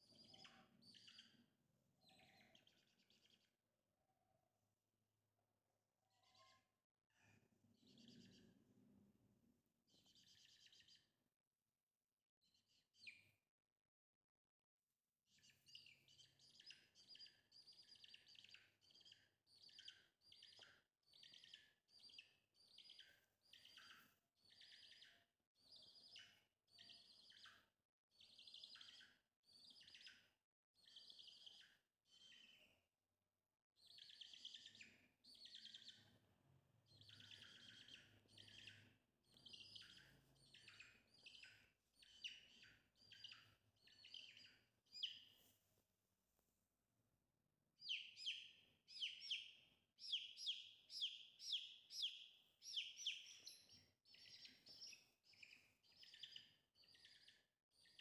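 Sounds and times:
baby chick peeping: 0.0 - 3.5, 7.8 - 8.7, 9.9 - 11.1, 15.4 - 32.7, 33.8 - 45.4, 47.8 - 58.0.

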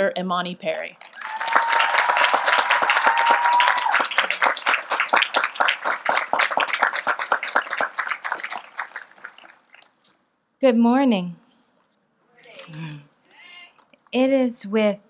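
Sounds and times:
audience applauding: 1.0 - 10.0.

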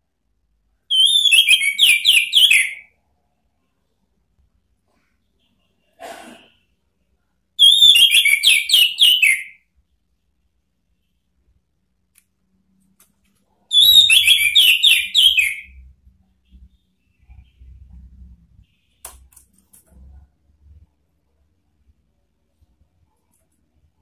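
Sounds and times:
thrush whistling song: 0.9 - 2.9, 7.6 - 9.6, 13.7 - 15.8.

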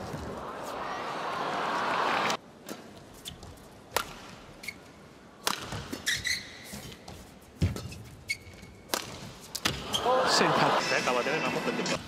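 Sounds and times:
court shoes squeaking: 2.7 - 5.0, 5.6 - 10.1
racket hitting shuttlecock: 3.9 - 4.4, 5.4 - 6.9, 8.9 - 10.0.

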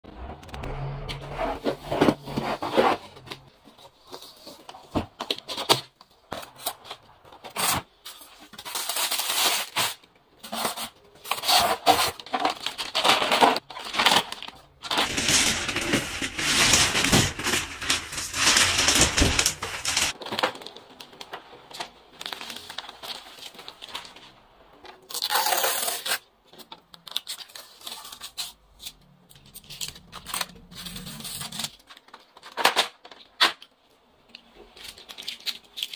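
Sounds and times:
plastic bag rustling: 11.9 - 20.6.

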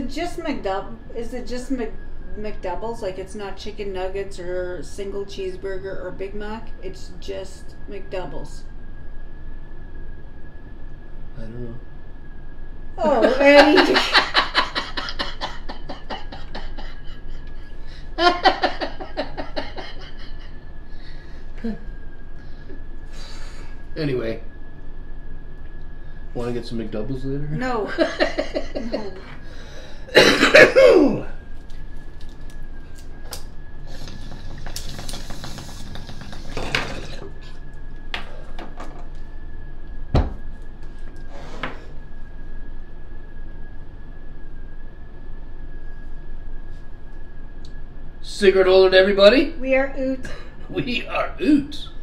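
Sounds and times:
man and woman laughing: 13.0 - 20.6, 27.9 - 29.3
low thump: 40.1 - 40.5.

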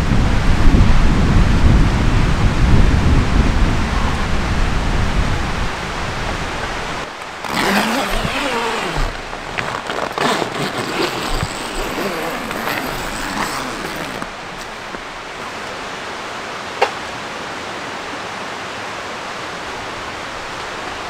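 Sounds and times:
strong wind gusting: 0.0 - 16.5
plastic sheet crinkling: 7.1 - 15.5.

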